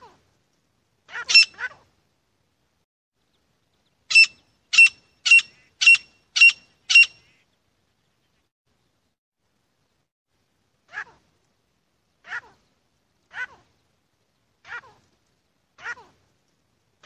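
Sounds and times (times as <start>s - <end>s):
francolin calling: 4.1s - 7.4s.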